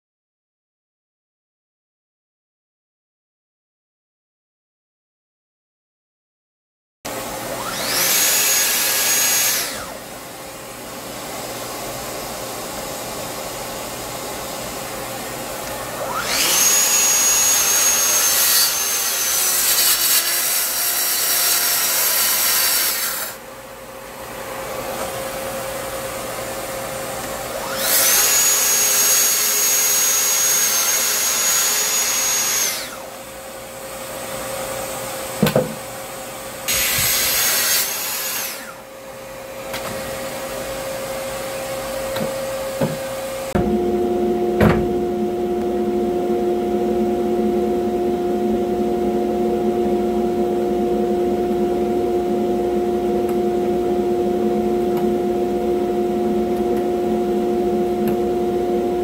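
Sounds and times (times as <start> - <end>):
dust extractor humming: 7.1 - 59.0
track saw cutting wood: 7.4 - 10.1, 15.6 - 23.4, 27.5 - 33.2, 36.7 - 38.9.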